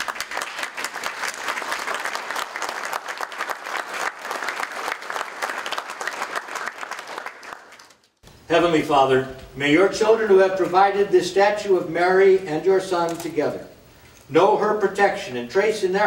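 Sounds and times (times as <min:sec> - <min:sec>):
congregation applauding: 0:00.0 - 0:08.2.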